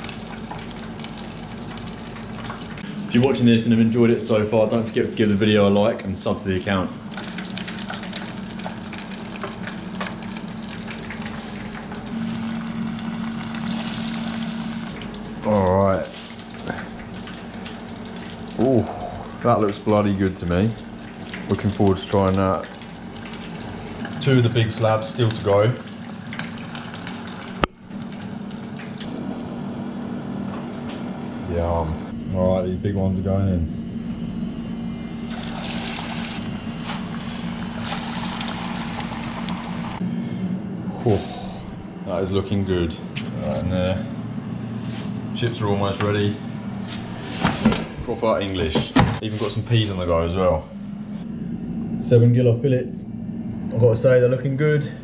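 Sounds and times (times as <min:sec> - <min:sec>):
deep-frying sizzle and crackles: 0:00.0 - 0:03.0, 0:07.0 - 0:20.0, 0:20.6 - 0:31.3, 0:35.2 - 0:40.0
low steady hum: 0:00.0 - 0:55.0.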